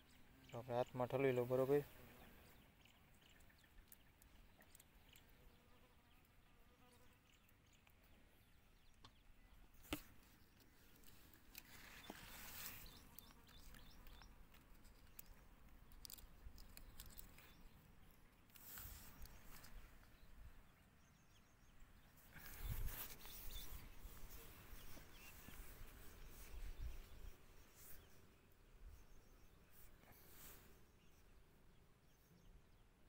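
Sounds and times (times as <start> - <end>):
dry bean pods crackling: 10.9 - 17.7.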